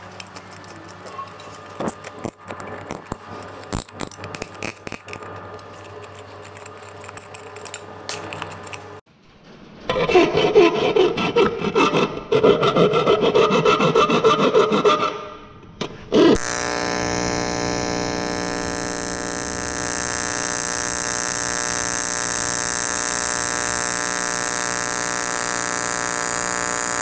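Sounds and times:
file rasping on sheet metal: 9.9 - 15.2.

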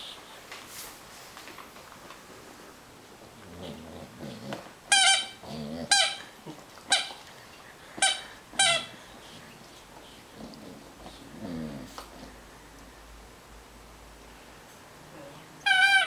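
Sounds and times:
squeaky toy squeaking: 4.9 - 6.3, 6.9 - 7.1, 8.0 - 8.9, 15.6 - 16.0.

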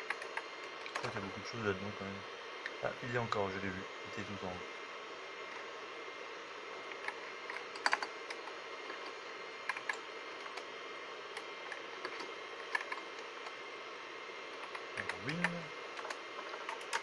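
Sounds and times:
steady background hum: 0.0 - 17.0.

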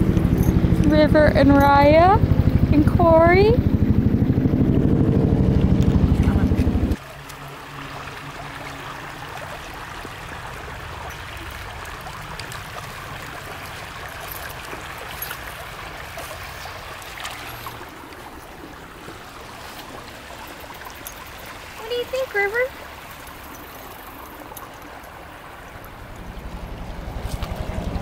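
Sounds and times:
creek water running over rocks: 6.2 - 28.0.

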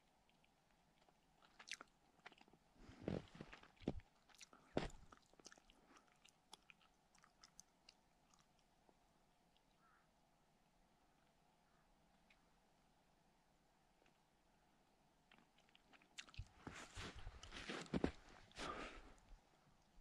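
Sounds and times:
footsteps crunching in snow: 2.9 - 4.0, 16.6 - 19.0.

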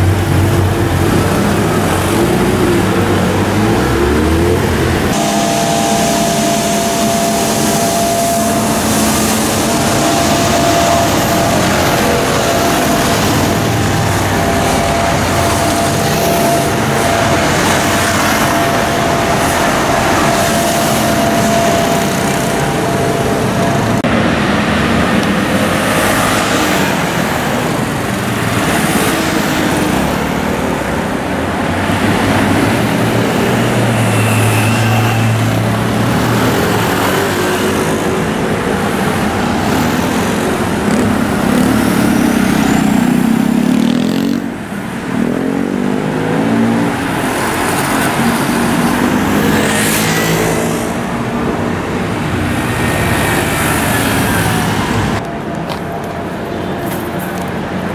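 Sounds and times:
steady whine: 0.0 - 43.8
city street traffic: 0.0 - 57.9
motorcycle and scooter engines: 0.0 - 57.9.

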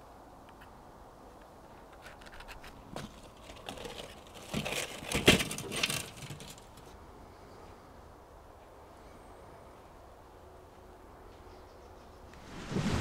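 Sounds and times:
metal rattling and scraping: 2.0 - 6.9.

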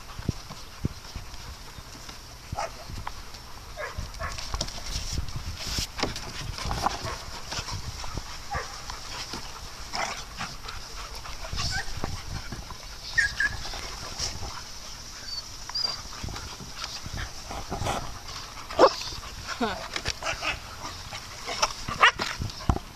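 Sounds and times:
dogs scuffling: 0.0 - 22.9
dogs yipping: 2.6 - 2.9, 3.8 - 4.4, 10.8 - 16.3, 18.7 - 19.2
dog whining: 13.1 - 13.7.

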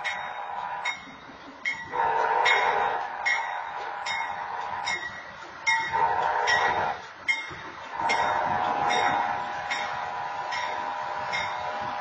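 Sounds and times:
crossing bell ringing: 0.0 - 11.9
train horn blasts: 1.8 - 4.9, 5.7 - 7.0, 7.9 - 12.0.

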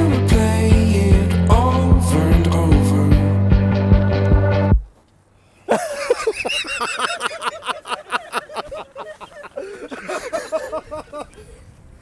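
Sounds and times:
couple laughing: 5.6 - 11.7.

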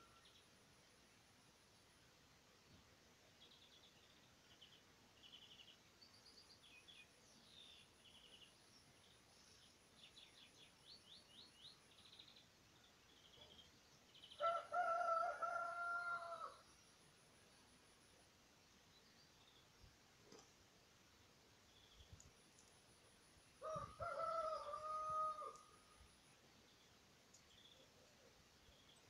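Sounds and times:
small songbirds singing: 3.2 - 29.0
rooster crowing: 14.4 - 16.6, 23.6 - 25.6.

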